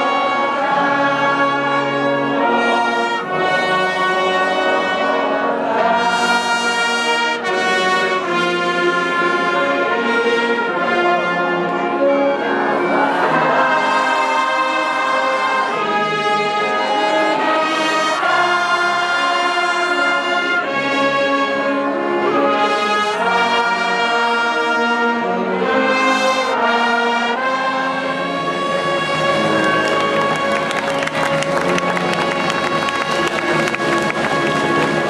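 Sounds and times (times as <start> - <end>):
brass band playing slow chords: 0.0 - 35.0.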